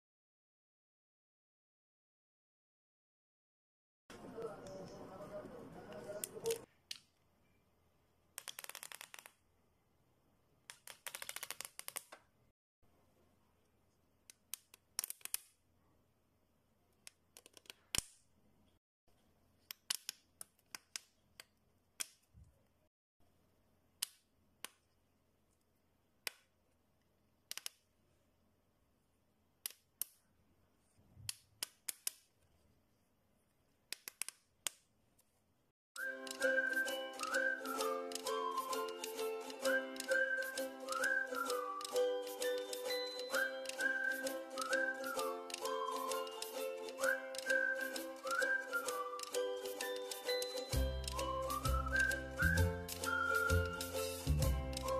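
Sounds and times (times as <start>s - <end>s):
suction cups popping: 8.3s - 9.4s, 10.7s - 12.3s.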